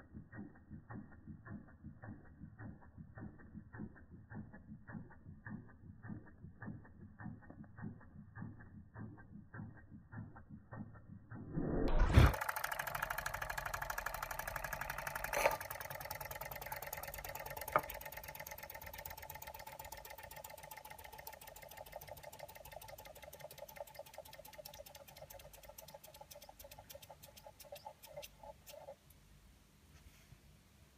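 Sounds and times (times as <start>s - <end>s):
toy steam engine beating: 12.3s - 29.0s.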